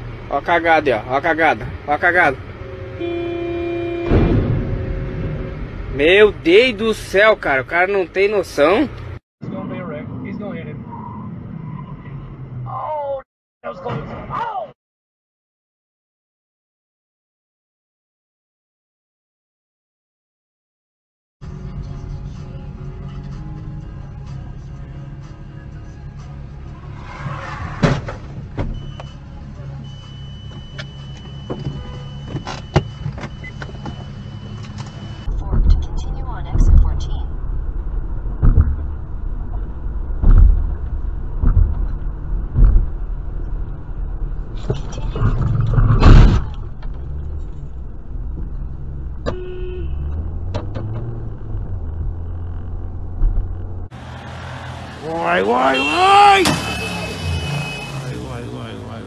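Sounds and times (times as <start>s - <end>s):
car engine humming: 0.0s - 9.2s, 21.5s - 59.0s
car horn honk: 2.2s - 6.1s, 31.4s - 32.6s, 49.2s - 50.3s, 54.4s - 58.6s
motorcycle crash: 4.0s - 5.7s, 56.3s - 58.3s
knocks and thumps: 38.3s - 43.1s.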